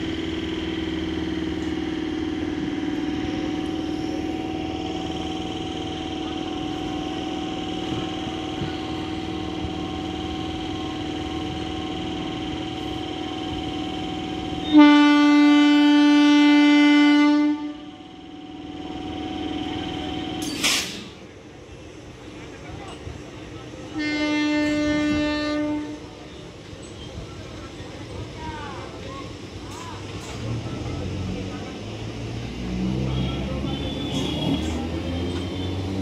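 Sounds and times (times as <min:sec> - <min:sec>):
electrical hum of train: 0:00.0 - 0:36.0
train horn blast: 0:14.6 - 0:17.9, 0:23.9 - 0:26.1, 0:33.1 - 0:36.0.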